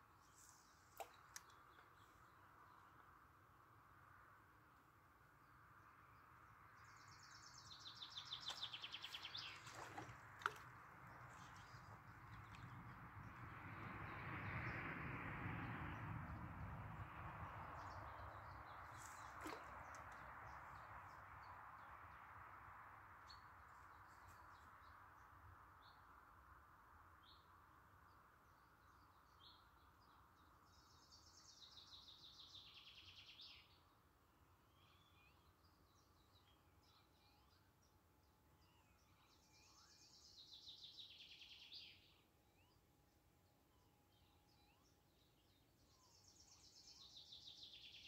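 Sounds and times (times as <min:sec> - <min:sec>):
songbird trill: 0:06.8 - 0:13.0, 0:28.1 - 0:34.0, 0:34.6 - 0:48.0.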